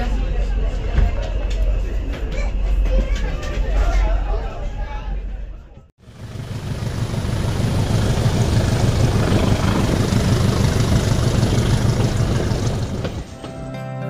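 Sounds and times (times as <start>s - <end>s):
diesel locomotive engine drone: 6.0s - 13.5s.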